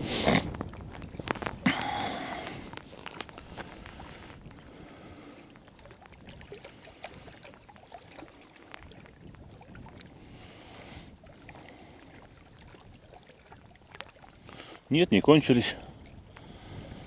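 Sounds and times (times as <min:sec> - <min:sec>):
small waves lapping on rocks: 0:00.0 - 0:17.0.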